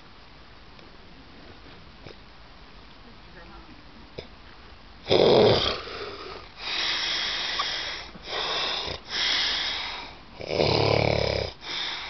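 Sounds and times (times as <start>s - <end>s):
man snoring: 5.1s - 12.0s
hissing breaths: 5.6s - 12.0s.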